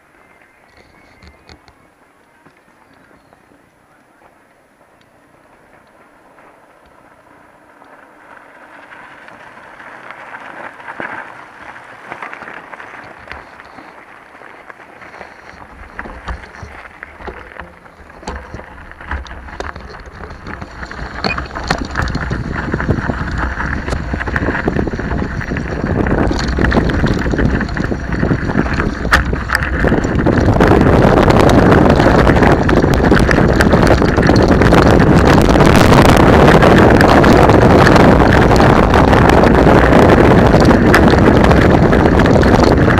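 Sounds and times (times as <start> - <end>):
bike rattling on gravel: 0.0 - 42.9
wind over microphone: 10.0 - 42.9
clicks from stones: 10.9 - 35.4.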